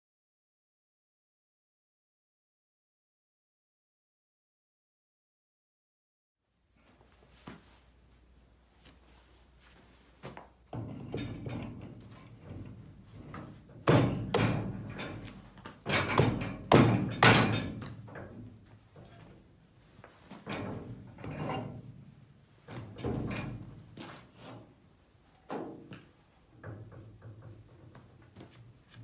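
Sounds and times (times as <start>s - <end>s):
knocks and thuds of tire on rim: 10.7s - 19.2s, 22.7s - 24.6s.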